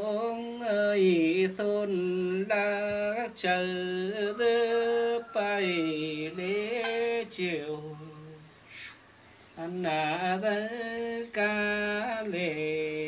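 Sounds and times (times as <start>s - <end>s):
woman singing unaccompanied: 0.0s - 8.6s, 9.6s - 13.0s
short breaths: 8.5s - 9.6s.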